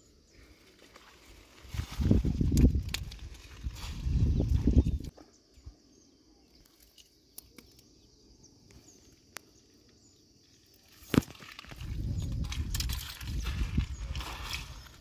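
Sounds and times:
insects droning: 0.0 - 15.0
footsteps on gravel: 11.1 - 15.0.

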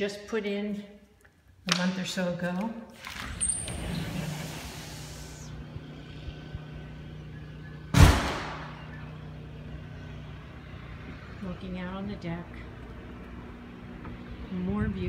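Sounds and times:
low hum: 3.0 - 15.0
loud thump: 7.9 - 8.8.

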